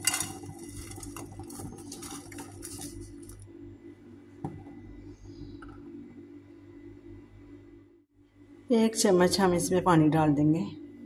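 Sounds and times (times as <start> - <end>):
sugar granules pattering onto pan: 0.0 - 3.4
steady low hum: 0.0 - 11.0.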